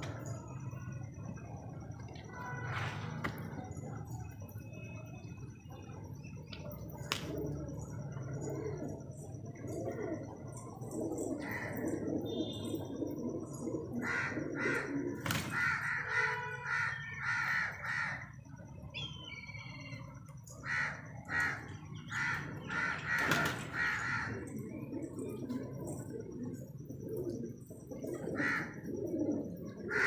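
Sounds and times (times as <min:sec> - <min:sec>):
pigeons cooing: 0:00.0 - 0:18.4, 0:20.2 - 0:30.0
harsh caw-like bird calls: 0:11.4 - 0:13.0, 0:14.0 - 0:18.5, 0:20.6 - 0:24.6, 0:28.3 - 0:29.0, 0:29.8 - 0:30.0.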